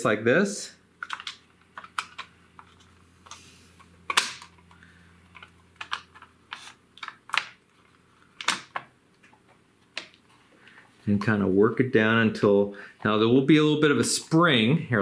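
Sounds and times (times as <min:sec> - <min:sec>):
plastic cassette shell clicking: 0:01.0 - 0:02.8, 0:05.4 - 0:07.6.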